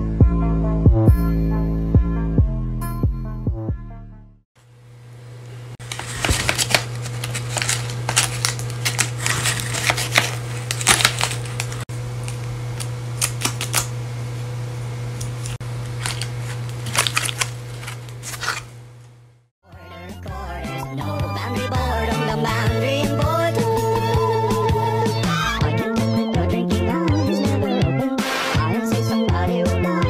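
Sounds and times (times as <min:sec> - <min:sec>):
steady low hum: 0:04.6 - 0:19.5
papery clicks: 0:05.8 - 0:13.9, 0:15.2 - 0:18.7.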